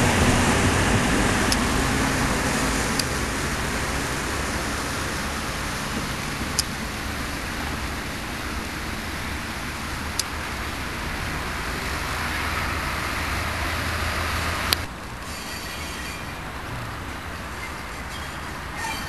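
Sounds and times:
street traffic rumble: 0.0 - 19.0
sharp high ticks: 2.8 - 3.2, 6.2 - 7.8, 9.8 - 10.4.

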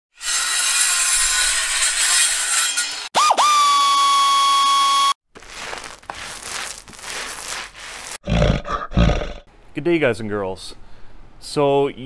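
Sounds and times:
soft rustling bursts: 5.3 - 8.2.

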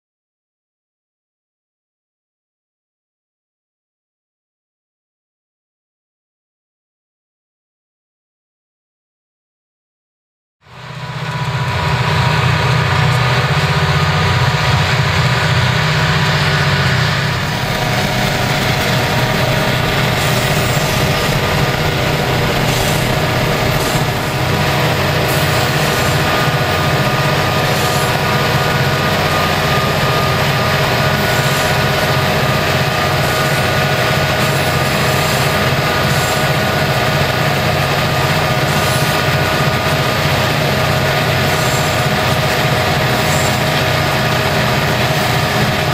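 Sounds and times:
diesel locomotive engine running: 10.6 - 45.9
steady whine: 10.7 - 45.9.

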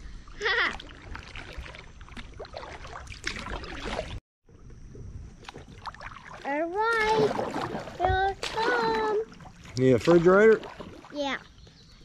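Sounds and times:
paddle dipping and dripping: 0.0 - 11.8
child calling: 8.0 - 9.3.

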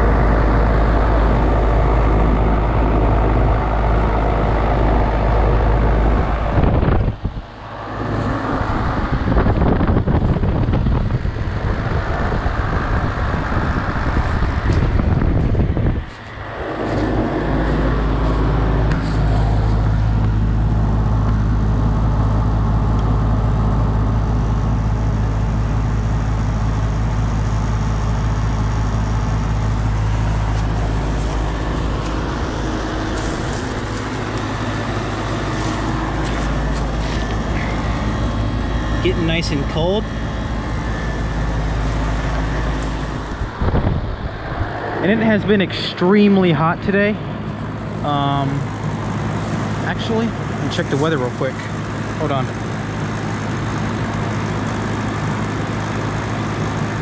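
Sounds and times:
fan air rush: 0.0 - 57.0
heat pump compressor hum: 0.0 - 57.0.

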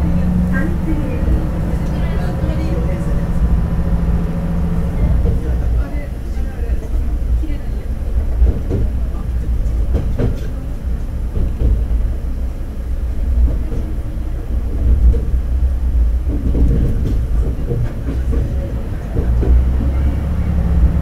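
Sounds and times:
railcar engine rumble: 0.0 - 21.0
wheels clicking over rail joints: 16.2 - 21.0.

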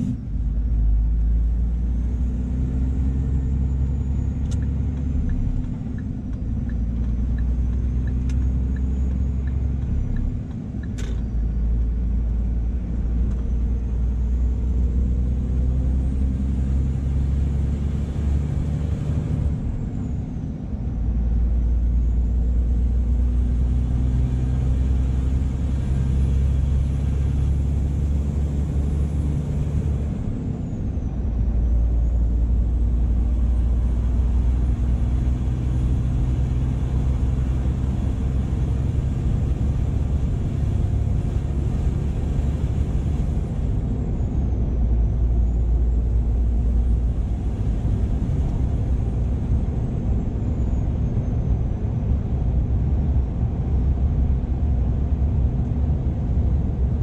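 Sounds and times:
truck diesel engine running: 0.0 - 56.8
road noise: 0.0 - 57.0
turn indicator ticking: 4.4 - 11.2.

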